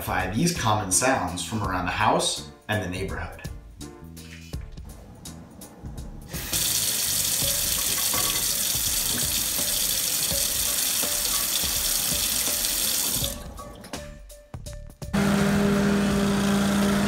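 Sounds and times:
faucet running into a sink: 6.4s - 13.5s.

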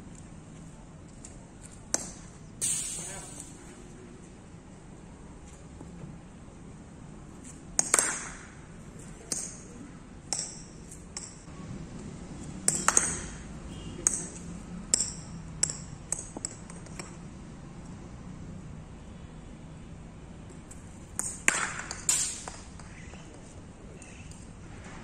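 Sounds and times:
ball bouncing on concrete: 1.9s - 2.3s, 7.4s - 8.6s, 9.2s - 9.7s, 10.3s - 11.4s, 12.4s - 17.2s, 20.5s - 23.4s
bat striking cricket ball: 7.8s - 8.7s, 12.6s - 17.1s, 21.1s - 23.2s.

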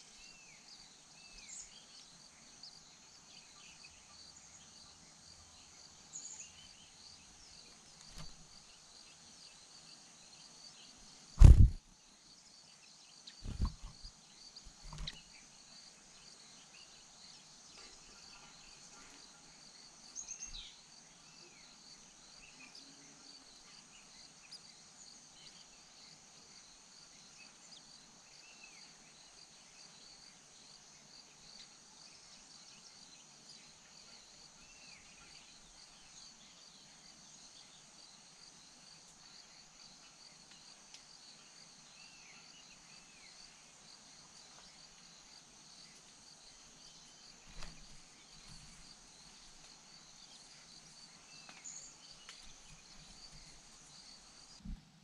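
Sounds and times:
insects chirring: 0.0s - 54.7s
brief knock: 11.4s - 11.8s.

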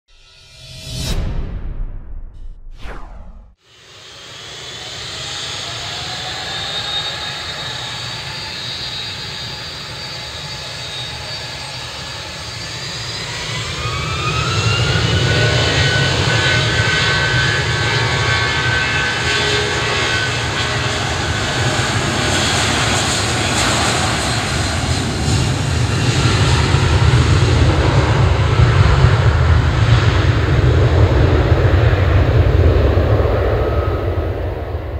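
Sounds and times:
buzz-saw engine sound: 0.1s - 27.4s
jet engines spooling up: 0.1s - 34.9s.

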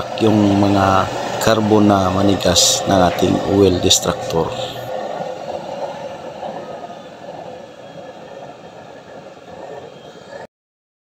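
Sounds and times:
oil burner flame rushing: 0.0s - 10.5s.

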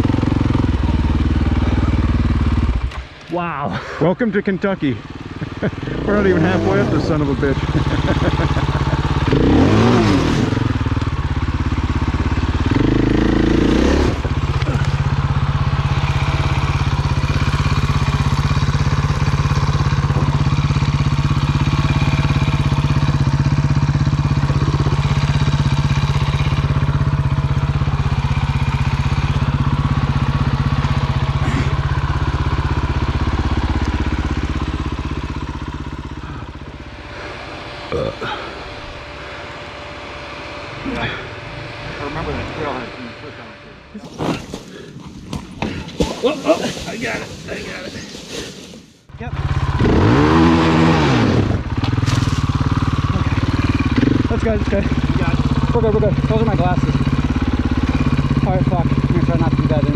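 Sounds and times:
dirt bike engine revving: 0.0s - 3.2s, 4.1s - 47.8s, 49.1s - 59.9s.

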